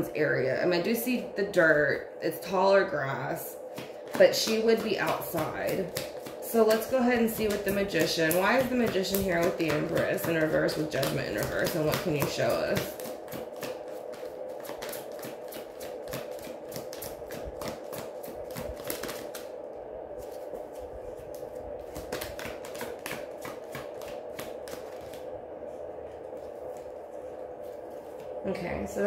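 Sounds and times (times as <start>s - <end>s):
steady hum: 0.0s - 29.0s
cards being shuffled: 3.7s - 19.5s, 20.2s - 25.3s.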